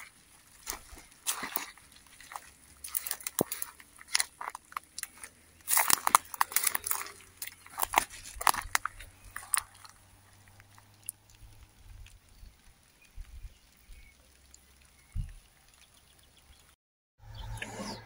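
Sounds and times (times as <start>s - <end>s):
footsteps crunching on dry straw: 0.0s - 10.0s.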